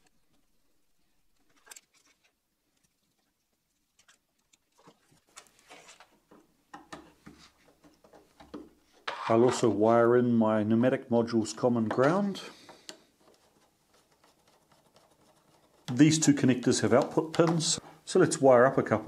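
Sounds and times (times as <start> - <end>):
wires being handled: 1.3 - 3.3, 3.9 - 9.5, 12.0 - 16.1.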